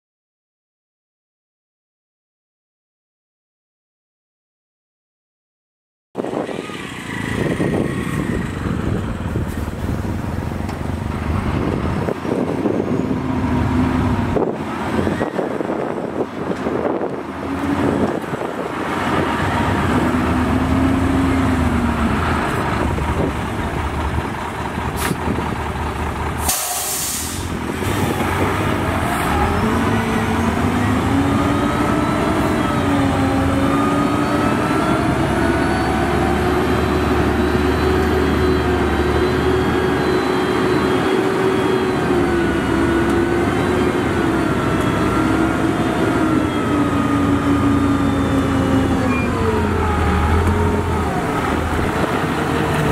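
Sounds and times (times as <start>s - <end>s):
truck diesel engine running: 15.8s - 52.9s
air brake hiss: 26.4s - 27.6s.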